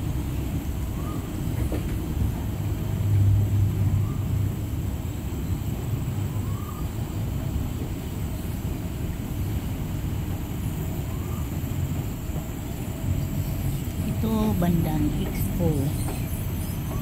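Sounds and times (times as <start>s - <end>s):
low background rumble: 12.0s - 17.0s.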